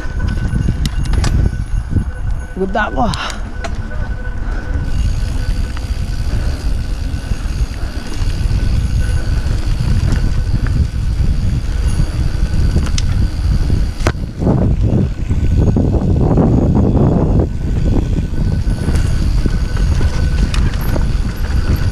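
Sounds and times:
bike rattling: 0:00.0 - 0:21.9
wind on microphone: 0:00.0 - 0:21.9
tyres rolling on dirt: 0:03.6 - 0:16.6, 0:17.6 - 0:21.9.

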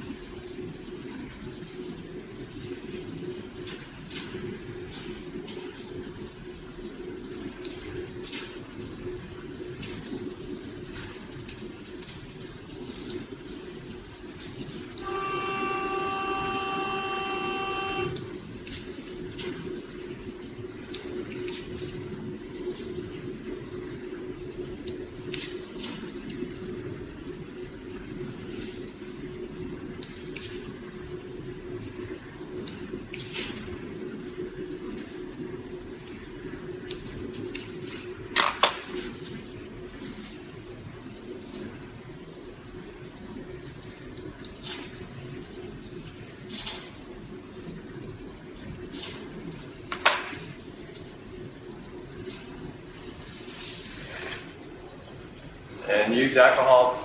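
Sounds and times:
low hum: 0:00.0 - 0:57.0
steady pitched tone: 0:13.9 - 0:18.6.

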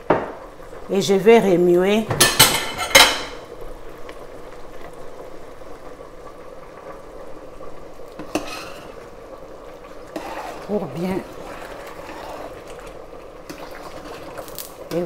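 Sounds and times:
sauce bubbling: 0:03.4 - 0:15.0
spoon stirring sauce in pot: 0:08.2 - 0:09.0, 0:10.1 - 0:15.0.

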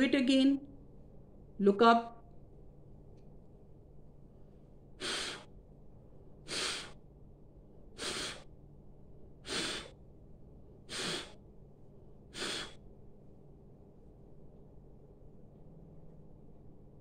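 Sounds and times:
woman blowing sharp breaths: 0:05.0 - 0:05.6, 0:06.4 - 0:07.0, 0:07.9 - 0:08.6, 0:09.4 - 0:10.0, 0:10.9 - 0:11.4, 0:12.3 - 0:12.9.

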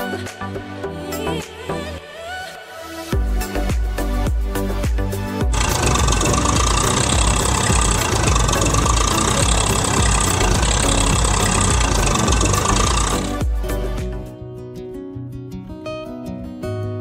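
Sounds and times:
tractor engine running: 0:05.5 - 0:13.6.

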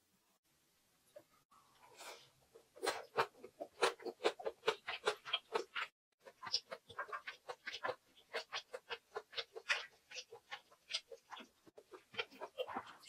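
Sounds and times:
chewing with wet mouth clicks: 0:02.9 - 0:13.0.

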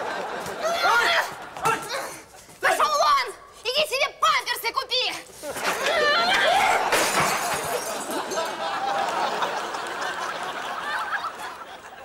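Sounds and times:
objects clattering: 0:06.6 - 0:08.6
something breaking crash: 0:06.9 - 0:08.1.

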